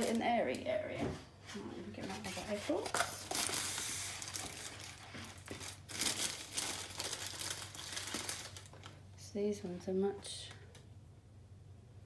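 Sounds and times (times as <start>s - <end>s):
plastic bag crinkling and rustling: 2.0s - 9.1s.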